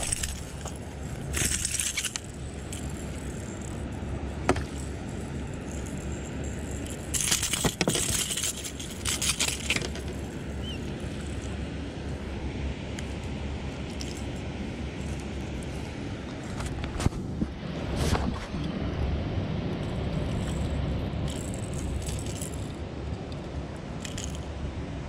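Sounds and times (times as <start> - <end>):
rustling: 0.0 - 12.4.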